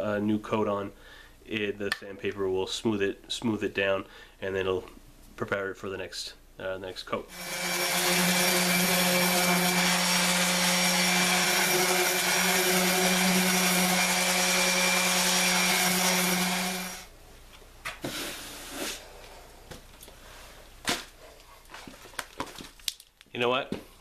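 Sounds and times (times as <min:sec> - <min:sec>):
orbital sander running: 0:07.3 - 0:17.1.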